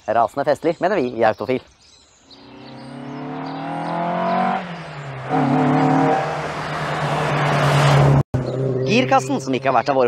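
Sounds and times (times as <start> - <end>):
car engine accelerating: 2.4 - 10.0.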